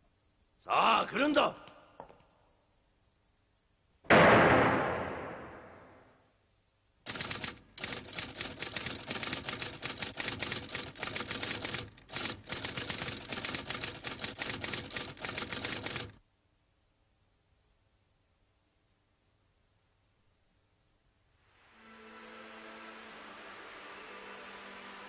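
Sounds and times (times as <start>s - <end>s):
barrage of sharp fight hits: 4.1s - 5.8s.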